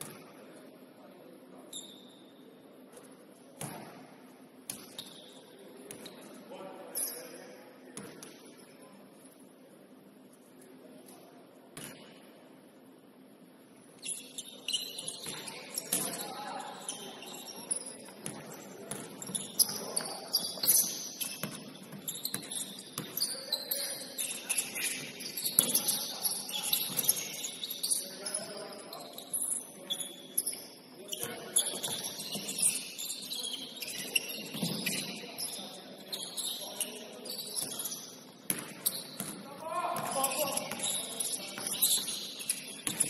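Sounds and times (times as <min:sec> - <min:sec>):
sneakers squeaking on court: 0:01.7 - 0:02.3, 0:04.7 - 0:06.4, 0:14.0 - 0:43.0
players' voices: 0:15.0 - 0:43.0.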